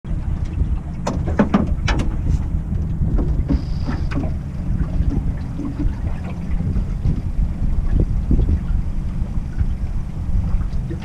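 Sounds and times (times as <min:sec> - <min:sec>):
wind buffeting microphone: 0:00.1 - 0:11.0
sharp clicks and knocks: 0:01.0 - 0:04.4.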